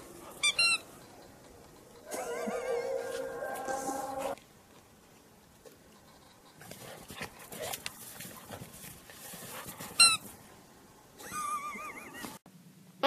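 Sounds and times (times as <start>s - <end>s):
dog squeaking: 0.4s - 0.9s.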